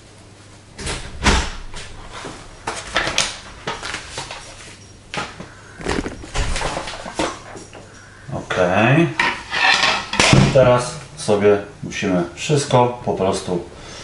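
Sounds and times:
paper bag crinkling: 0:05.8 - 0:07.4.

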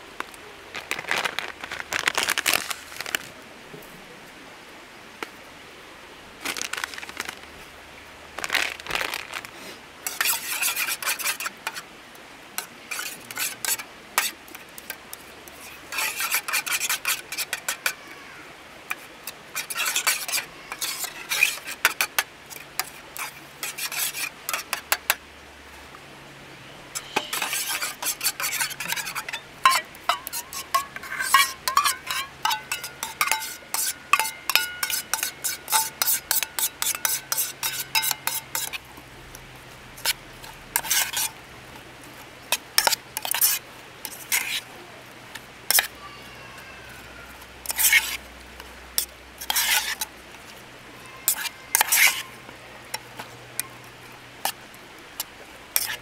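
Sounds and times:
metal spoon scraping a bowl: 0:10.0 - 0:11.8, 0:12.6 - 0:18.0, 0:18.9 - 0:25.2, 0:27.0 - 0:38.9, 0:40.0 - 0:41.4, 0:42.5 - 0:44.7, 0:47.6 - 0:48.2, 0:49.0 - 0:50.1, 0:51.2 - 0:52.3, 0:55.8 - 0:56.0
spoon clinking on metal: 0:27.2 - 0:38.8.

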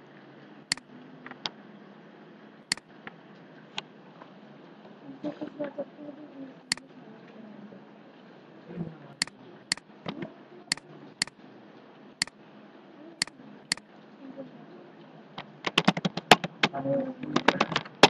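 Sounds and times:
computer mouse clicking: 0:00.7 - 0:01.5, 0:15.7 - 0:16.7.

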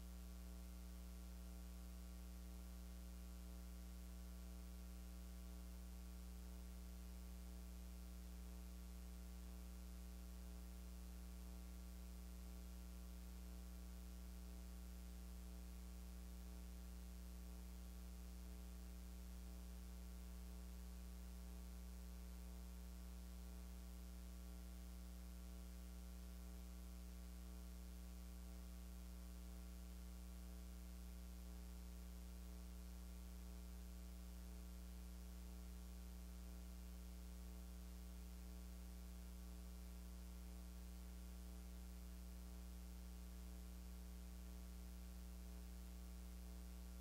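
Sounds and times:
faint electrical mains hum: 0:00.0 - 0:47.0.

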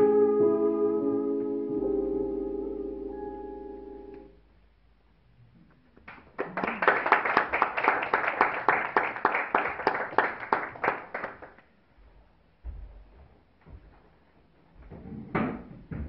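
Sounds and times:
audience applauding: 0:06.0 - 0:11.6.

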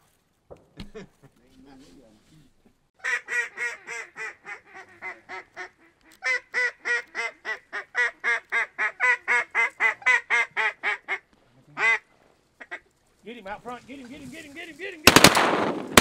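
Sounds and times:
duck call quacks: 0:03.0 - 0:11.2, 0:11.8 - 0:12.8.

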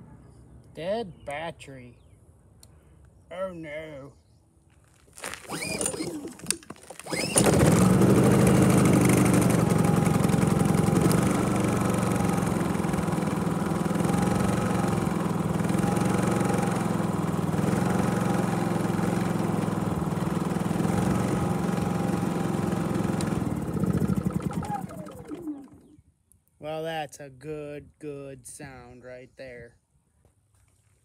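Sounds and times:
generator engine running: 0:05.3 - 0:26.0.

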